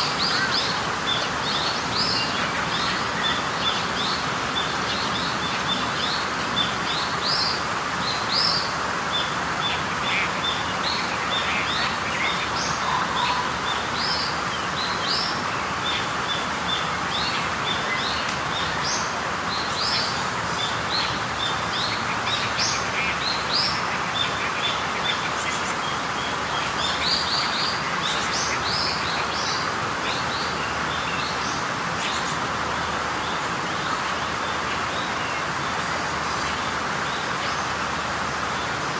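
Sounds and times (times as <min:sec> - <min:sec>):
birds chirping: 0:00.0 - 0:38.9.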